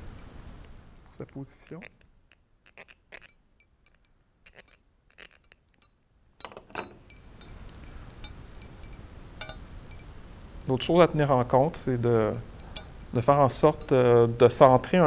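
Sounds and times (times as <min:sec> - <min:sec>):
metal keys clinking: 0:03.2 - 0:10.2.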